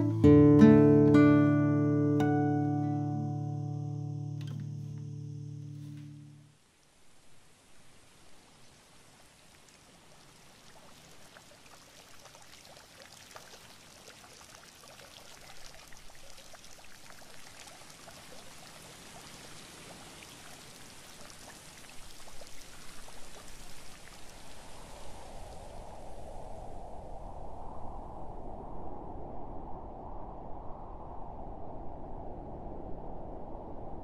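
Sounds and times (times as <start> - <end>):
splashing trickling water: 9.4 - 24.4.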